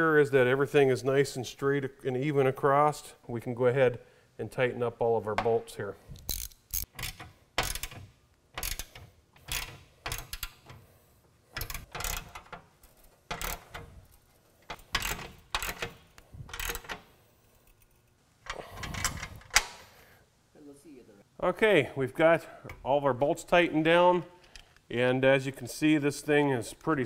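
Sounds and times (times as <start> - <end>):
ratchet wrench clicking: 6.2 - 8.0, 8.6 - 10.6.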